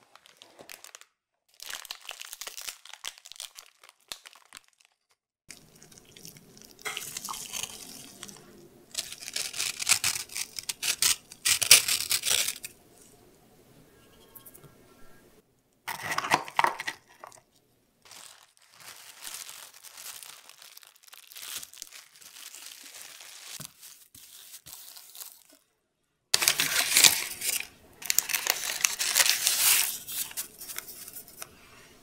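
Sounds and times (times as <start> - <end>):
cling wrap crinkling: 0.0 - 5.1, 6.8 - 12.8, 15.9 - 25.6, 26.4 - 31.5
cookies set in a dish: 5.5 - 12.7.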